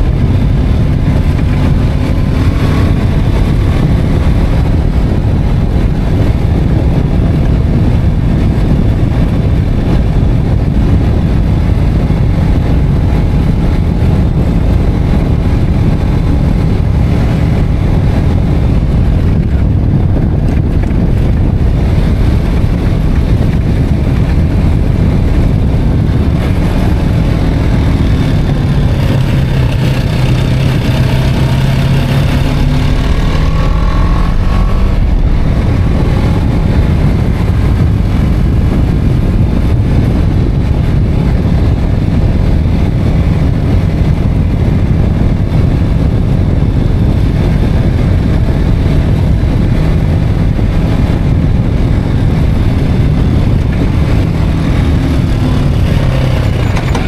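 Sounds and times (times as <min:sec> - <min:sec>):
wind rushing over microphone: 0:00.0 - 0:57.0
motorcycle engine pulling: 0:13.1 - 0:38.3, 0:51.7 - 0:57.0.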